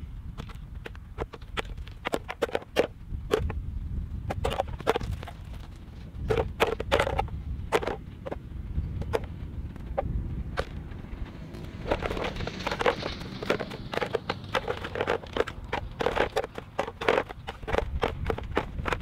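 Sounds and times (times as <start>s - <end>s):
plastic decoys clacking on a pile: 0.4s - 3.6s, 4.3s - 8.4s, 9.0s - 10.0s, 11.8s - 19.0s
low rumble: 5.2s - 16.1s.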